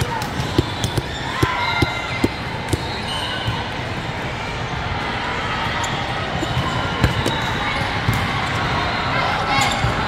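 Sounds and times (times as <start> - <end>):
volleyballs smacking on court: 0.0 - 2.9
din of busy hall: 0.0 - 10.0.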